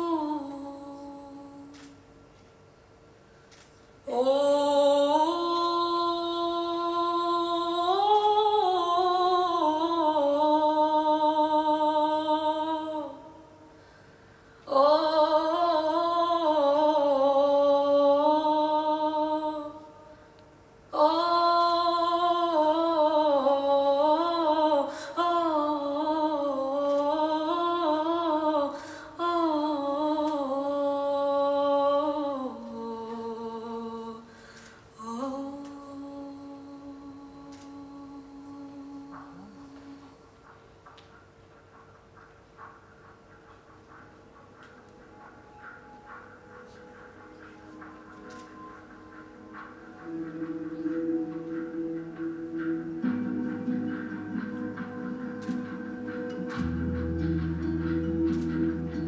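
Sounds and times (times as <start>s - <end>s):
woman singing wordless held notes: 0.0s - 2.1s, 4.0s - 14.0s, 14.6s - 40.6s.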